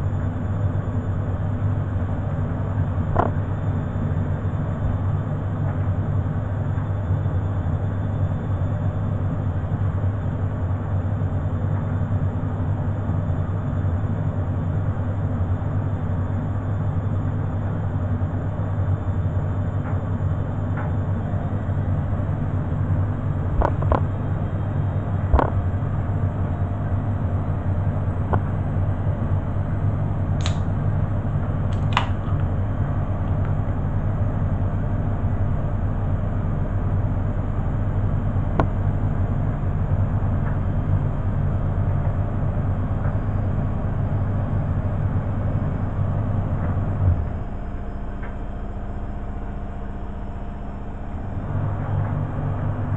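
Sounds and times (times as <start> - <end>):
washing machine humming: 0.0 - 52.9
sharp clicks: 30.4 - 30.7.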